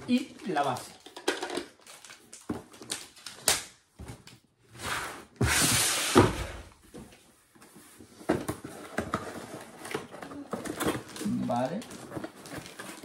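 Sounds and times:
cardboard rustling: 4.8s - 13.0s.

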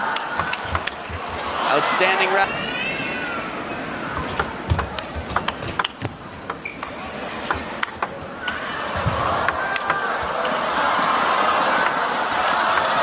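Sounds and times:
table tennis ball clicking: 0.2s - 1.5s, 4.1s - 8.6s.

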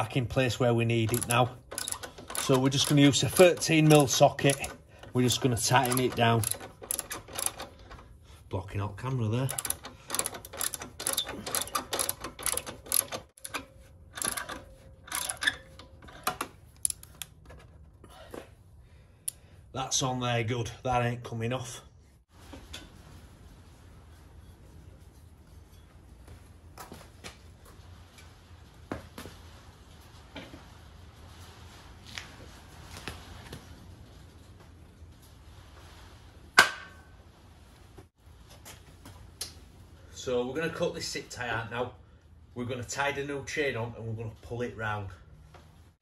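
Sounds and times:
socket ratchet clicking: 1.1s - 4.8s, 5.8s - 7.7s, 9.5s - 13.6s, 14.2s - 15.6s, 16.2s - 17.4s.

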